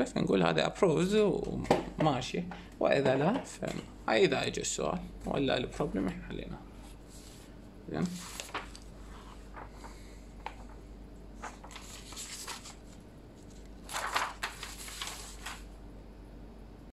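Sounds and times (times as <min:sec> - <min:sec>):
paper rustling: 0:06.9 - 0:15.8.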